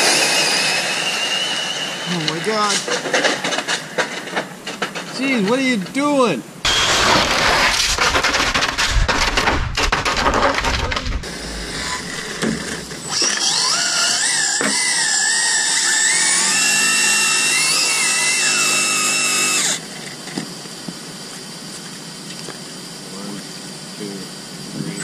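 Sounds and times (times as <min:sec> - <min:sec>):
electric motor whine: 0:00.0 - 0:02.7, 0:06.7 - 0:09.0, 0:10.8 - 0:21.0.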